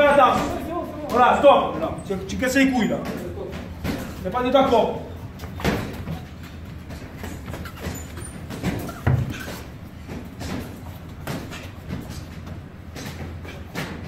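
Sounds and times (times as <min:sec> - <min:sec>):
feet on ring canvas: 0:02.8 - 0:14.0.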